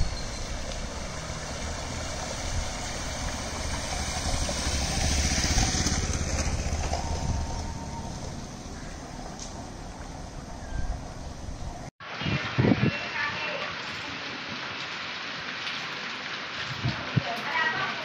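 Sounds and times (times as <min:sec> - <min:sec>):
motor scooter engine: 0:01.0 - 0:09.3.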